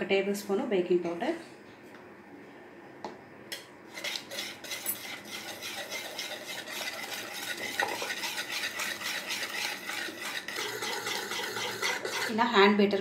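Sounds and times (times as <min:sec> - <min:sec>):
whisk beating in a bowl: 0:03.9 - 0:12.8.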